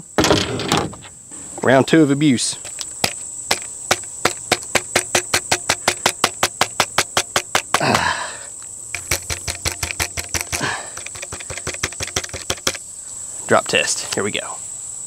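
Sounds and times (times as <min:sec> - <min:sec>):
crickets trilling: 0:00.0 - 0:15.0
fast regular clicking: 0:02.6 - 0:07.8, 0:08.9 - 0:12.8.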